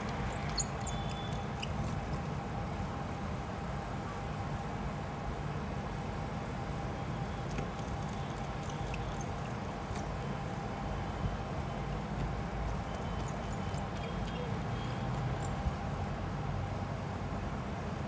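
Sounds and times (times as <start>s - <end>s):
faint steady whine: 0.0s - 18.0s.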